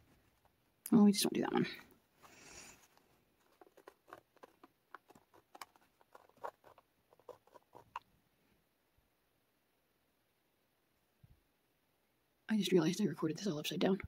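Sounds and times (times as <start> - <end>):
pen tip scratching on stencil: 3.5 - 8.0.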